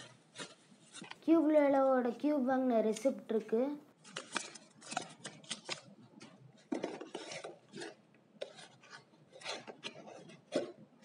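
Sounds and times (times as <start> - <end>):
paper rustling and crinkling: 0.0 - 1.2, 4.0 - 10.7
hands scraping cardboard box: 6.7 - 10.8.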